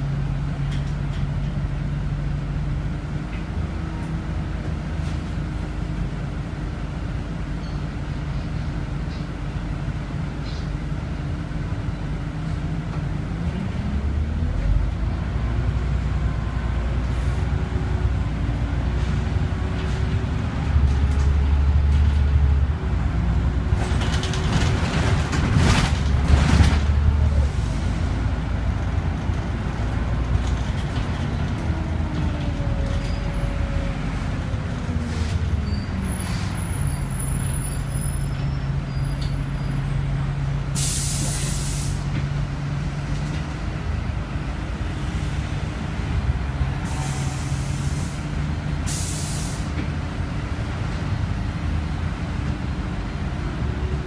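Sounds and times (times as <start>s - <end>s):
bus engine rumble: 0.0s - 54.0s
air brakes hissing: 40.7s - 42.2s, 46.8s - 49.8s.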